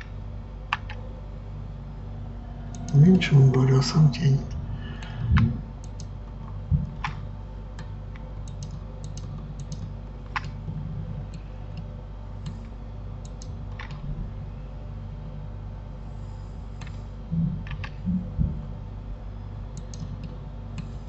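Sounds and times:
steady low hum: 0.0s - 21.0s
keyboard and mouse clicks: 5.0s - 6.1s, 6.8s - 7.2s, 7.8s - 10.6s, 19.8s - 20.4s.

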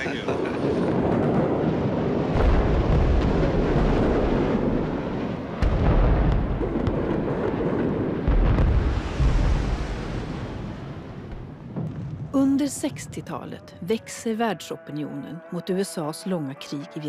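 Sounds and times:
big booms: 0.0s - 13.4s
bombs exploding rumble: 0.4s - 13.3s.

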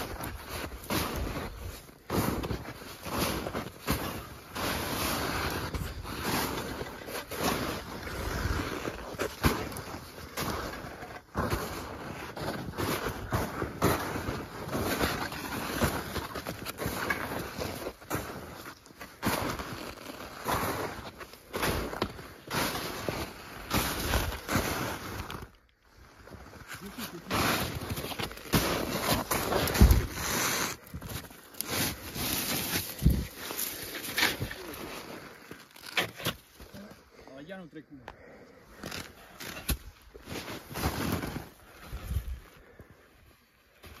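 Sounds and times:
footsteps crunching in snow: 0.0s - 36.8s, 38.7s - 42.8s
wind noise on microphone: 33.0s - 33.3s.

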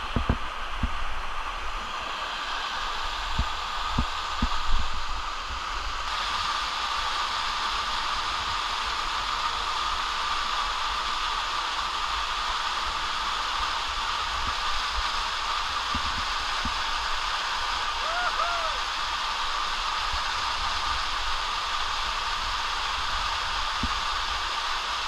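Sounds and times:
waterfall rushing: 0.0s - 25.0s.

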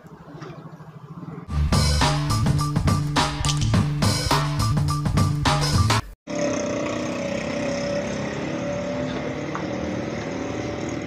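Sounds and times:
music jingle: 1.5s - 6.0s
street noise: 5.2s - 11.0s
small motorcycle engines running: 6.3s - 11.0s.

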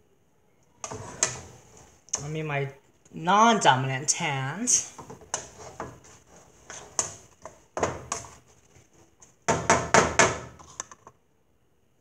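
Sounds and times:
spatula scraping a pan: 0.8s - 2.3s, 4.7s - 11.0s.

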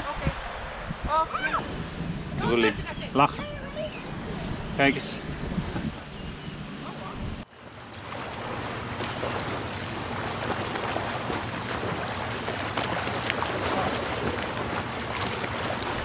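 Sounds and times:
small waves breaking on sand: 7.5s - 16.0s.

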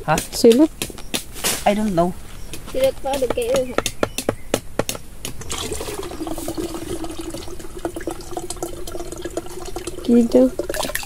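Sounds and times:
liquid pouring into plastic pitcher: 5.4s - 11.0s.

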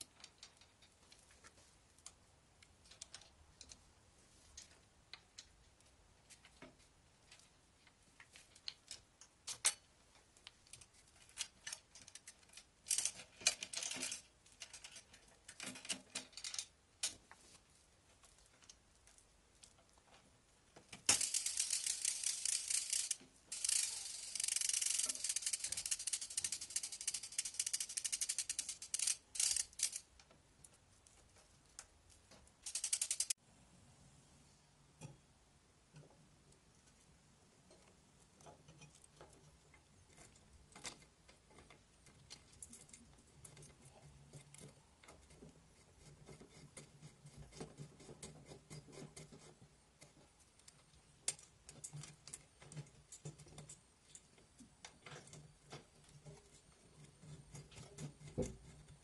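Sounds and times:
bicycle chain clicking and rattling: 12.8s - 14.3s, 21.1s - 30.1s, 32.6s - 33.4s.

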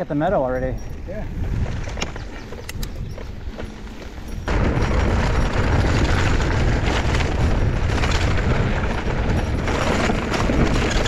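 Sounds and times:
bike tyre and frame rattle: 0.0s - 11.0s
wind buffeting microphone: 0.0s - 11.0s
bike knocking over bumps: 4.4s - 11.0s.

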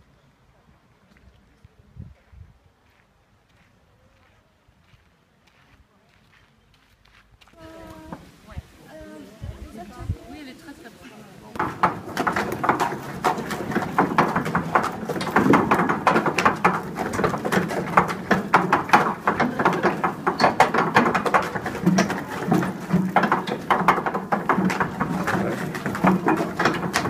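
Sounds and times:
apple mill crushing apples: 11.6s - 27.0s.

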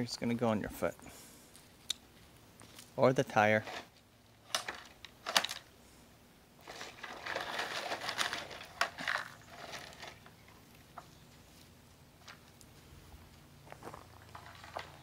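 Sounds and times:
gravel crunching and scraping: 6.6s - 15.0s.

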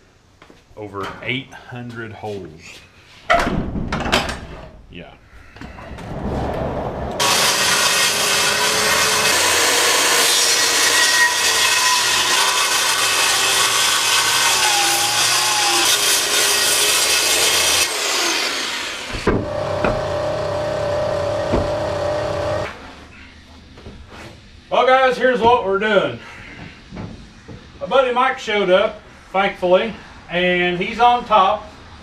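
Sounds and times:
circular saw cutting plastic: 7.2s - 22.8s.

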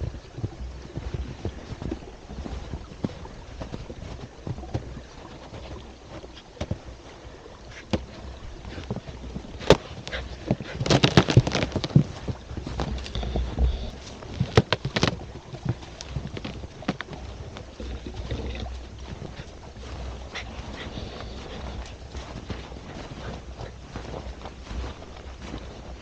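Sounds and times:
footsteps crunching in snow: 0.0s - 26.0s
wind rumble on microphone: 0.0s - 26.0s.

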